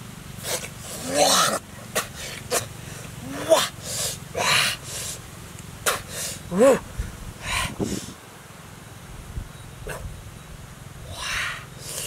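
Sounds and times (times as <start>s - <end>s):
man hissing breaths through teeth: 7.4s - 8.2s.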